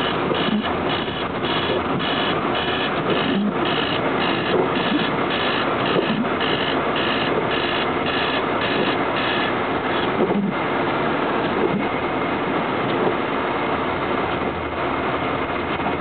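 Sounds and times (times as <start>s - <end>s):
electronic alarm beeping: 0.0s - 10.1s
car driving on snowy road: 0.0s - 16.0s.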